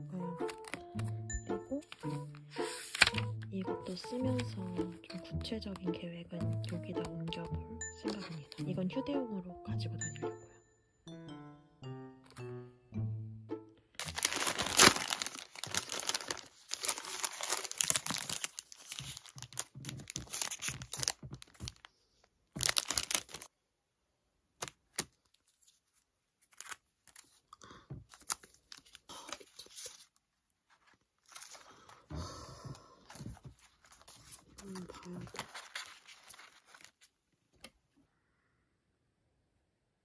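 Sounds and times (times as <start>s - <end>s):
plastic wrapping crinkling and tearing: 14.0s - 21.9s, 22.5s - 23.5s, 24.6s - 27.5s, 28.1s - 32.0s, 33.1s - 37.1s.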